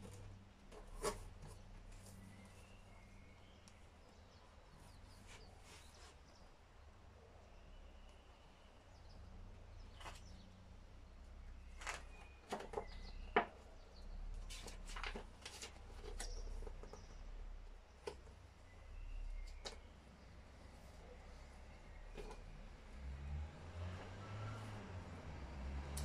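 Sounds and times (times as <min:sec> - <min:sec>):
paper rustling and page flicks: 0:14.5 - 0:16.3.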